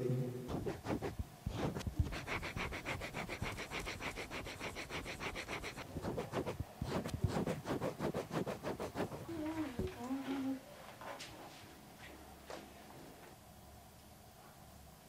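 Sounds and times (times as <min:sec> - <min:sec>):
pencil scratching on paper: 0:00.5 - 0:09.3.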